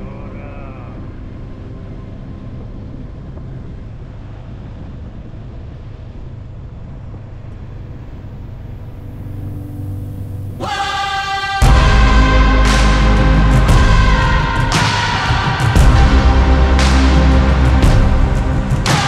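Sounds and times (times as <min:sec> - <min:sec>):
vehicle engine running: 0:11.6 - 0:14.8, 0:15.4 - 0:19.0.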